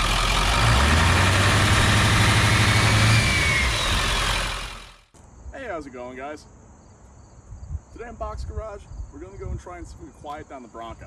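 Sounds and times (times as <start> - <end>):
vehicle engine droning: 0.0 - 5.1.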